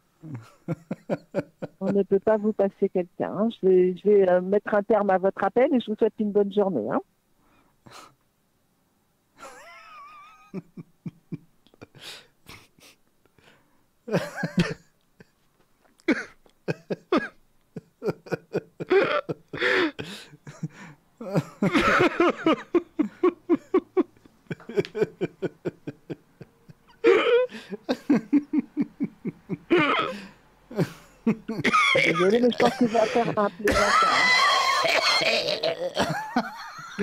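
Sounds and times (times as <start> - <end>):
man's stifled laughter: 0.2 - 2.0, 9.4 - 13.0, 14.1 - 15.3, 16.0 - 37.0.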